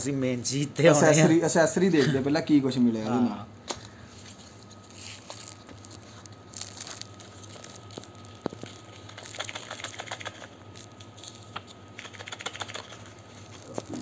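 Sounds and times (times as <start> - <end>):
packaging clicks and crinkles: 4.7 - 14.0.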